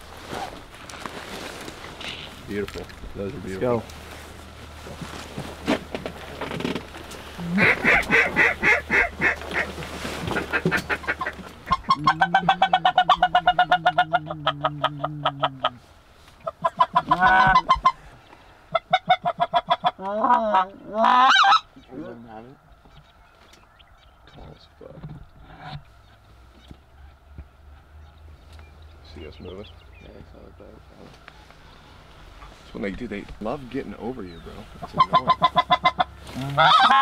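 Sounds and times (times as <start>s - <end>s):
geese honking: 7.4s - 15.8s, 16.4s - 18.0s, 18.7s - 22.6s, 33.5s - 37.0s
geese yelping calls: 7.4s - 15.8s, 16.4s - 18.0s, 18.7s - 22.5s, 34.1s - 37.0s.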